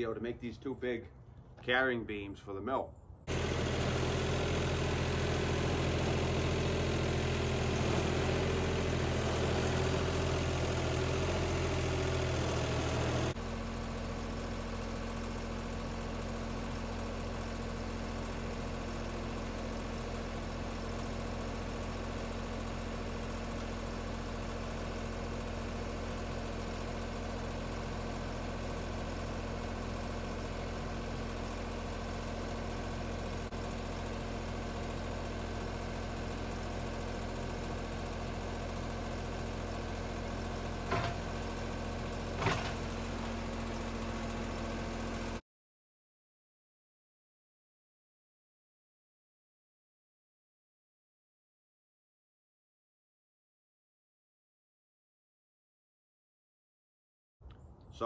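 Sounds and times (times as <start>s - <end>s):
tractor diesel engine running: 0.0s - 45.4s.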